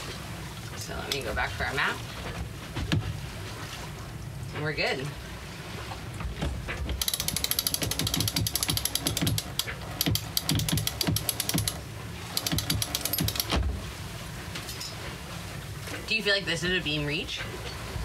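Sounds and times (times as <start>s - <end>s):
winch ratcheting clicks: 6.8s - 13.6s.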